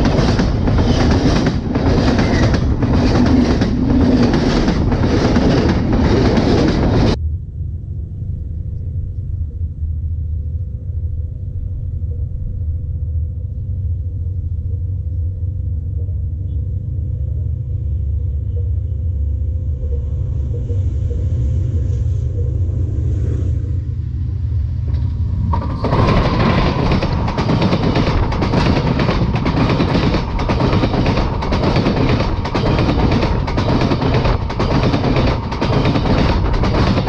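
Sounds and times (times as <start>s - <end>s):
train wheels clattering on rails: 0.0s - 7.2s, 24.8s - 37.0s
train low rumble: 0.0s - 37.0s.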